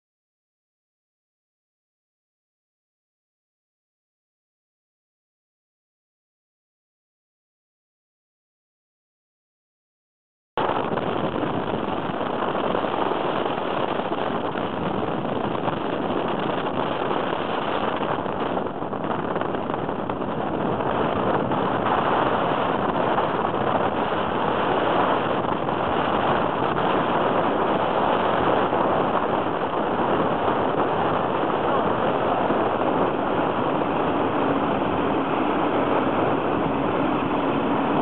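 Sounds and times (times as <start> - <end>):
aircraft engine noise: 10.6 - 38.0
rushing airflow: 10.6 - 38.0.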